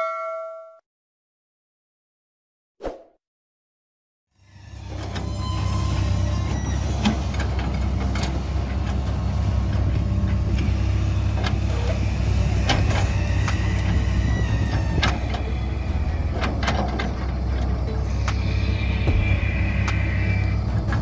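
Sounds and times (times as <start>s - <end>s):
excavator diesel engine running: 4.4s - 21.0s.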